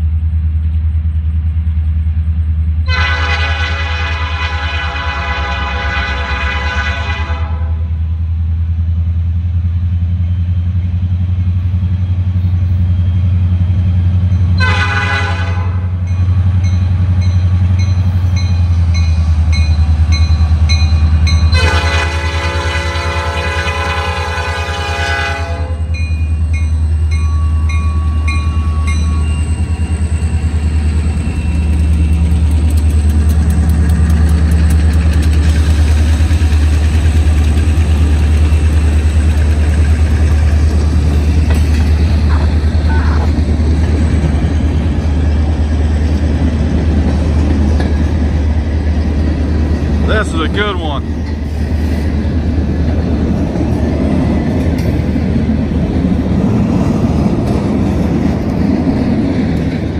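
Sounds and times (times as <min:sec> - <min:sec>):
diesel locomotives rumbling: 0:00.0 - 0:59.9
locomotive air horn: 0:02.8 - 0:07.9, 0:14.6 - 0:15.9, 0:21.5 - 0:25.9.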